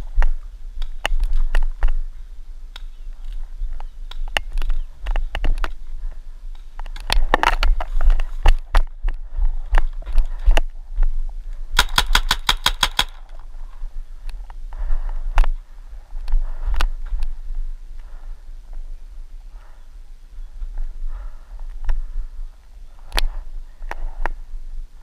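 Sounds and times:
paintball marker firing burst: 0:11.8 - 0:13.2.

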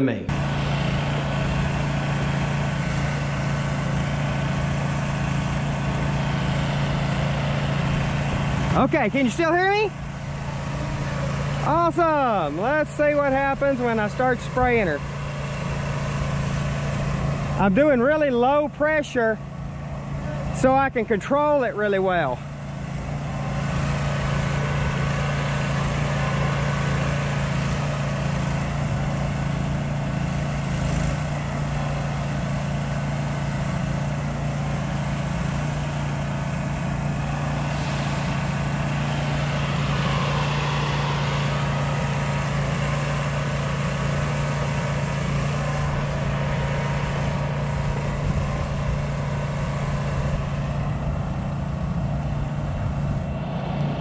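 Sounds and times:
pressure washer engine running: 0:00.0 - 0:54.0
water spraying hiss: 0:23.0 - 0:50.4.

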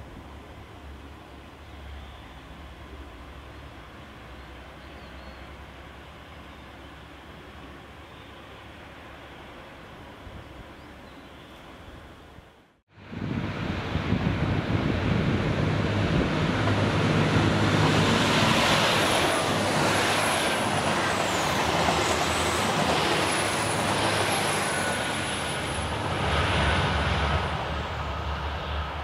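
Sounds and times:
diesel engine drone: 0:13.0 - 0:29.0
train wheels rushing on rails: 0:13.3 - 0:29.0.

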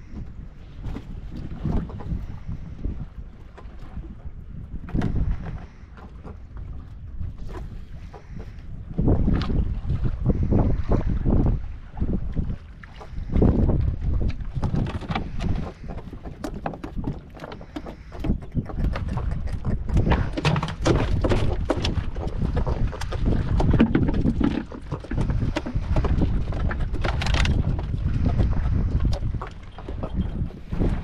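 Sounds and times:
wind rumble on microphone: 0:00.0 - 0:31.0
knocks and taps on boat deck: 0:14.2 - 0:31.0
fish flapping: 0:14.5 - 0:31.0.

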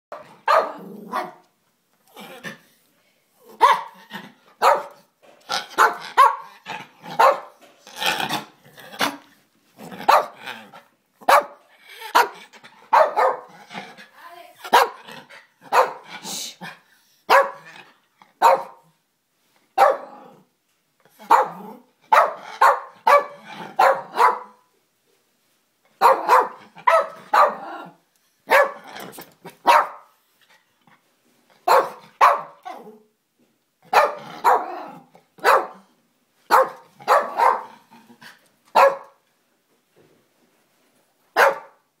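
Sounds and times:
small dog barking: 0:00.1 - 0:01.4, 0:03.6 - 0:04.0, 0:04.6 - 0:05.0, 0:05.8 - 0:06.5, 0:07.2 - 0:07.5, 0:10.0 - 0:10.4, 0:11.3 - 0:13.5, 0:14.7 - 0:15.0, 0:15.7 - 0:16.1, 0:17.3 - 0:17.8, 0:18.4 - 0:18.8, 0:19.8 - 0:20.2, 0:21.2 - 0:24.7, 0:26.0 - 0:27.9, 0:28.5 - 0:28.9, 0:29.6 - 0:30.1, 0:31.6 - 0:32.9, 0:33.9 - 0:35.9, 0:36.5 - 0:37.8, 0:38.7 - 0:39.2, 0:41.4 - 0:41.8.

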